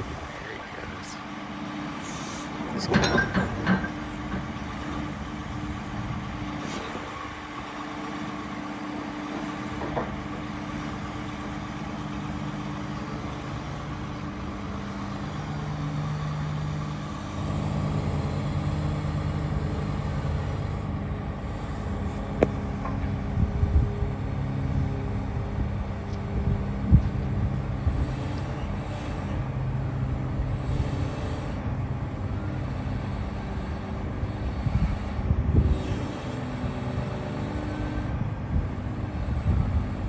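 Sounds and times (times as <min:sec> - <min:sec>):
excavator diesel engine: 0:00.0 - 0:40.0
hydraulics working: 0:00.0 - 0:40.0
metal clunks: 0:02.8 - 0:04.6.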